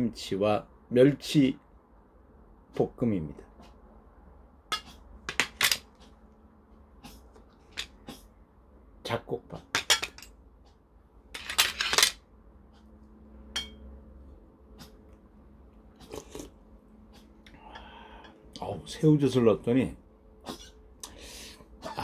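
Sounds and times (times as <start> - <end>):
spoon clinking on ceramic bowls: 13.6 - 13.9.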